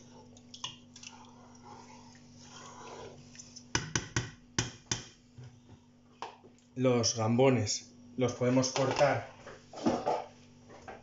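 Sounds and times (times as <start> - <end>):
stirring stew in a pan: 0.0 - 4.2
faint steady hum: 0.0 - 11.0.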